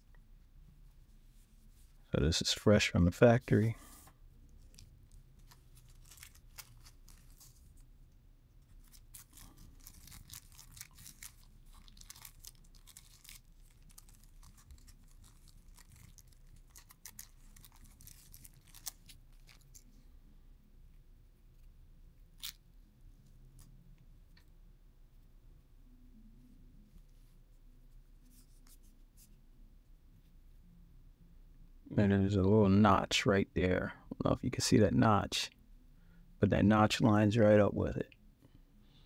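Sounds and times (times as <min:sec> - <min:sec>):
plastic packaging crinkling: 0:04.6 - 0:07.8, 0:08.6 - 0:19.9.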